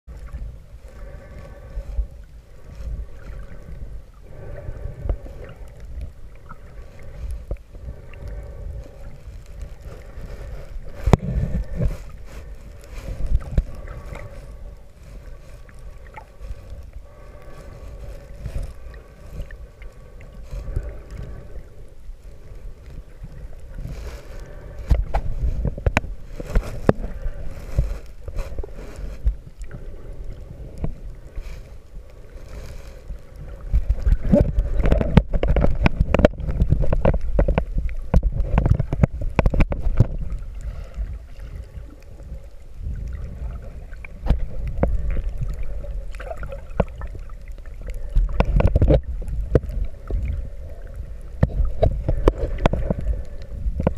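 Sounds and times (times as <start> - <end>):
muffled underwater water rumble: 0.0 - 53.9
faint steady hum: 0.1 - 53.9
underwater clicks and knocks: 10.9 - 12.2, 24.8 - 27.9, 33.7 - 40.4, 43.9 - 50.4, 51.3 - 53.9.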